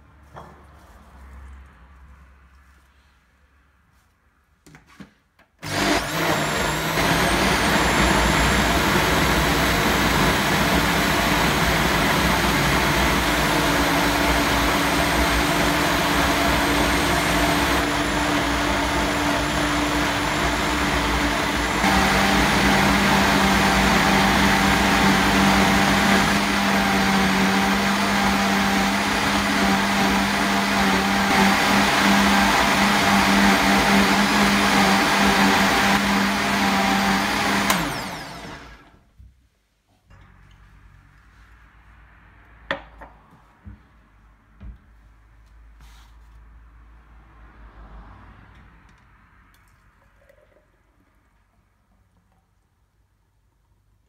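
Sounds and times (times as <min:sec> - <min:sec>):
blender motor running: 0:05.6 - 0:39.0.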